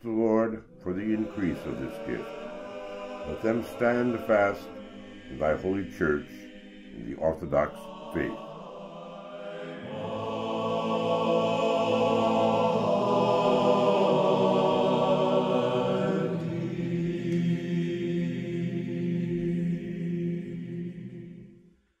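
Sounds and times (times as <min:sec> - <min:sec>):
choir chanting held chords: 0:00.0 - 0:22.0.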